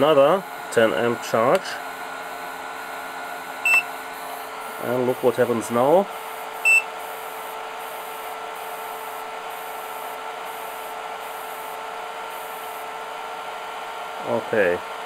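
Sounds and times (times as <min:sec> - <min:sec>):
cooling fans running: 0:00.0 - 0:15.0
short electronic beep: 0:03.6 - 0:03.9, 0:06.6 - 0:06.9
power supply high hiss: 0:03.7 - 0:11.8.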